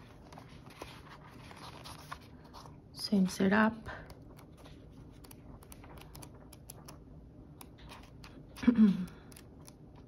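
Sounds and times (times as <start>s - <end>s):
paper pages being turned: 0.0s - 2.8s, 4.2s - 7.0s.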